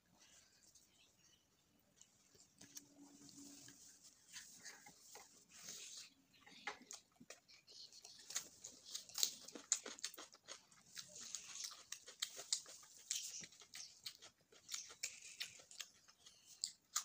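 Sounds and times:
crunching cucumber: 8.2s - 17.0s.

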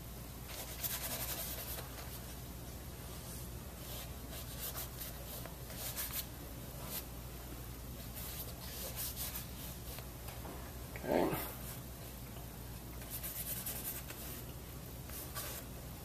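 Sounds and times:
low steady hum: 0.0s - 16.0s
paintbrush scratching on canvas: 0.5s - 2.2s, 13.0s - 14.4s.

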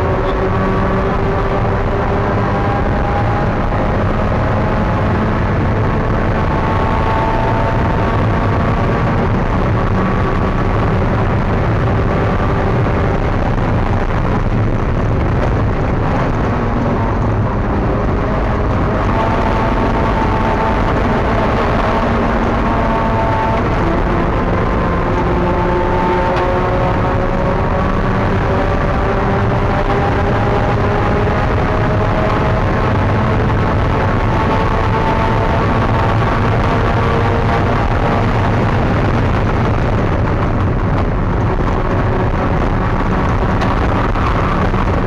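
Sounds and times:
race car engine revving: 0.0s - 45.0s
wind and road noise: 0.0s - 45.0s.

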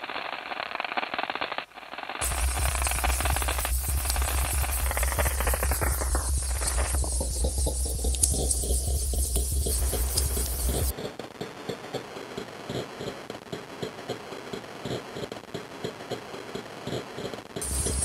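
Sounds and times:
high electronic hiss: 0.0s - 10.9s, 17.5s - 18.0s
scratchy crackling texture: 0.0s - 18.0s
deep electronic drone: 2.2s - 10.9s, 17.6s - 18.0s.

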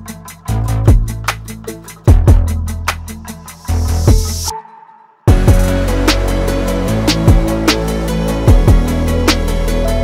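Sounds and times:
kick drums: 0.9s - 1.2s, 2.1s - 2.5s, 5.3s - 5.7s, 7.3s - 7.6s, 8.5s - 8.9s
held bass notes: 5.3s - 10.0s.

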